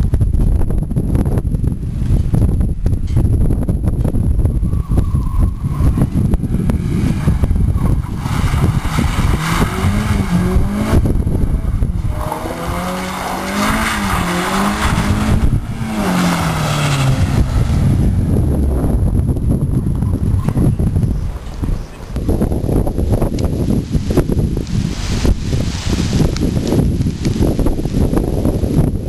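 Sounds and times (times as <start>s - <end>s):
tyre and road rumble: 0.0s - 29.0s
car engine revving: 5.7s - 20.0s.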